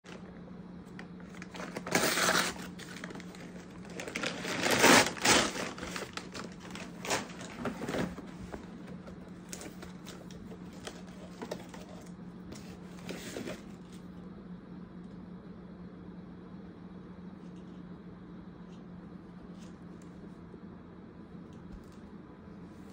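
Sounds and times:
faint steady hum: 0:00.0 - 0:22.9
paper mailer bag crinkling and tearing: 0:00.1 - 0:13.8.

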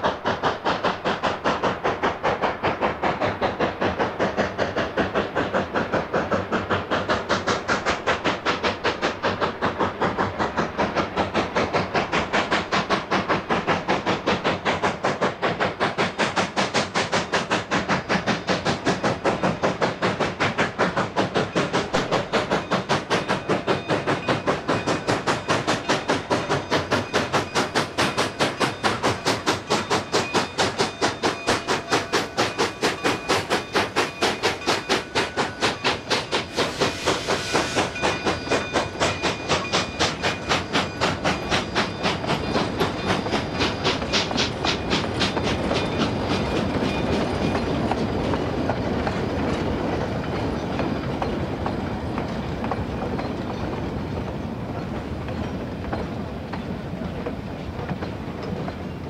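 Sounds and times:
train wheels clicking over rail joints: 0:00.0 - 0:59.0
brief hiss: 0:36.3 - 0:38.0.

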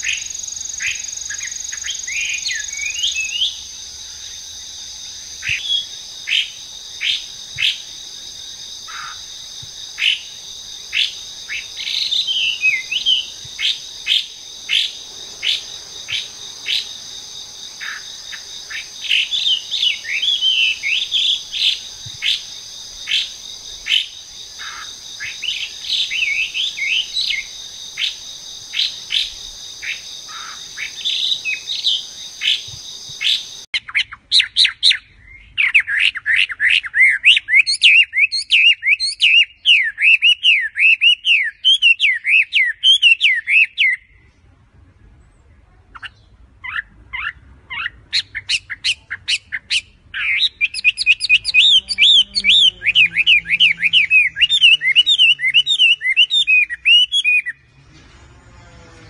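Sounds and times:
high insect drone: 0:00.0 - 0:33.7, 0:51.2 - 0:56.3, 0:57.7 - 0:59.0
bird whistling and warbling: 0:46.0 - 0:57.6.

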